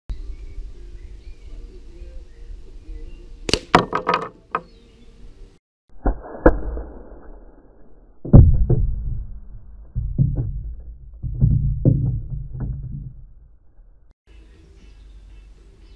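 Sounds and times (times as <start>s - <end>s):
tube falling onto wooden table: 3.5s - 4.7s
dull knocks: 9.8s - 13.5s.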